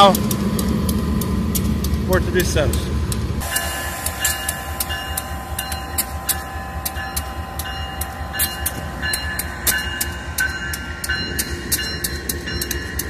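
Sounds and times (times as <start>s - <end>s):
locomotive engine rumble and whine: 0.0s - 13.0s
wheels clicking and squeaking on rails: 0.0s - 13.0s.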